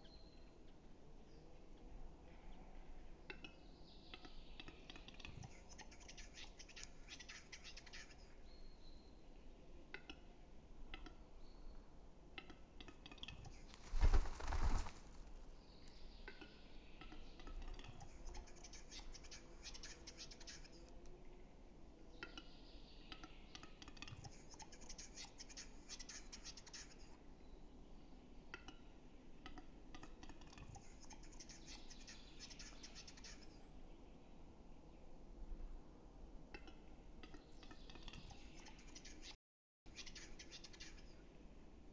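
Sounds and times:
bird display song clicks: 0:03.3 - 0:08.4, 0:15.8 - 0:20.9, 0:22.2 - 0:26.9, 0:36.5 - 0:39.4
rustling thump: 0:13.8 - 0:15.2.

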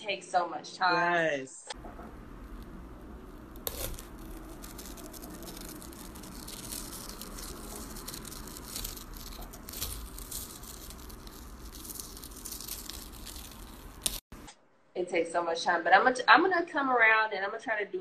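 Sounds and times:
crackling and rustling: 0:01.7 - 0:14.2
low steady hum: 0:01.7 - 0:15.2.

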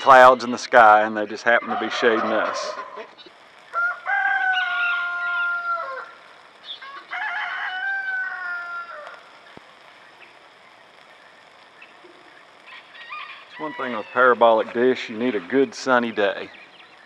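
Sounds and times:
rooster crowing: 0:01.6 - 0:03.1, 0:03.7 - 0:09.4, 0:12.6 - 0:14.4.

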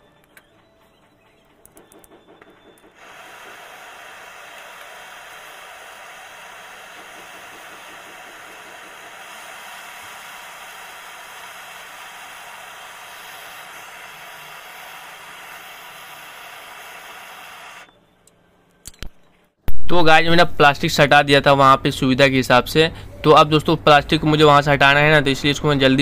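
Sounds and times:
gas torch hissing: 0:02.8 - 0:17.9.

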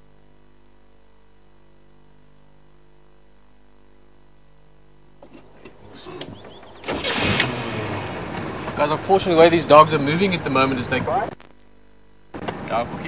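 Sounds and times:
faint steady hum: 0:00.0 - 0:13.0
vehicle engine: 0:05.2 - 0:11.4
vehicle rattling on dirt track: 0:06.1 - 0:11.0.

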